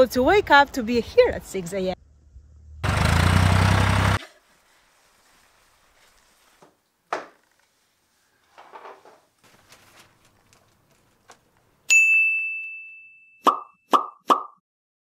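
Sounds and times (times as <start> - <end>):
short rustle: 4.3 - 11.6
bell-like ding: 11.9 - 13.8.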